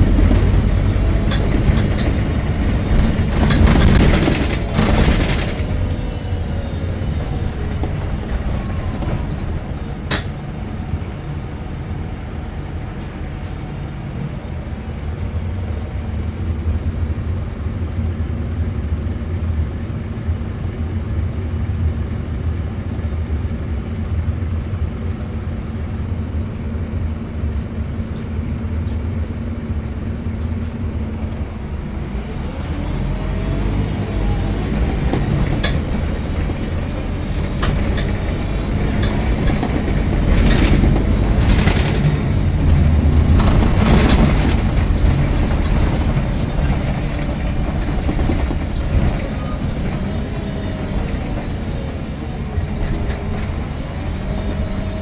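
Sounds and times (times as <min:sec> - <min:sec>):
knocks and interior rattles: 0:00.0 - 0:11.4, 0:25.2 - 0:55.0
bus diesel engine: 0:00.0 - 0:55.0.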